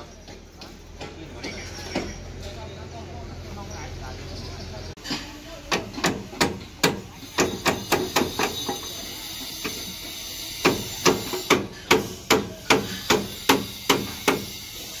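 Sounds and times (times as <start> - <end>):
hammer striking steel: 5.1 - 9.0, 10.6 - 14.6.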